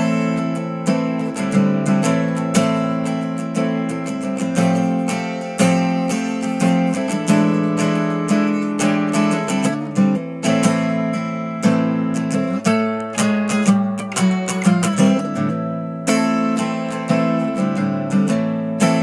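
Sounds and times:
acoustic guitar playing blues: 0.0s - 19.0s.

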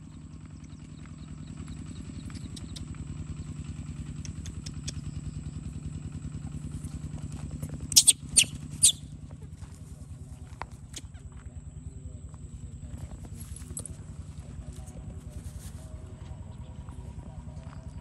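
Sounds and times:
small motorcycle engine idling: 0.0s - 18.0s
sharp clicks: 4.1s - 5.2s.

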